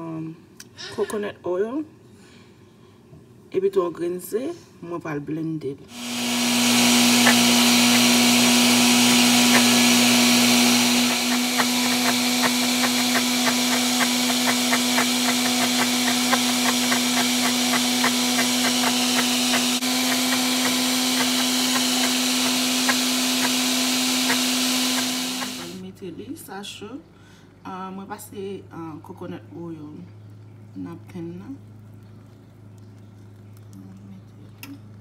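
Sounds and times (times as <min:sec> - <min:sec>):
blender running: 0:05.9 - 0:25.8.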